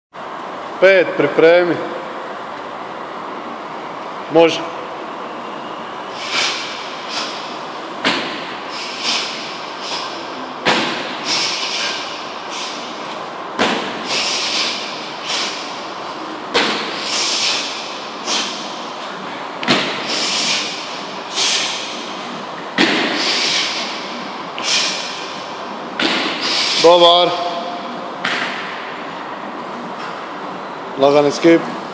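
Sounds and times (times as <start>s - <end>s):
heavy sandbag thudding: 8.0s - 15.7s
short bursts of hiss: 8.7s - 10.1s, 14.0s - 15.6s, 16.9s - 18.6s, 20.0s - 21.9s, 23.2s - 23.9s, 24.6s - 25.1s, 26.4s - 26.9s.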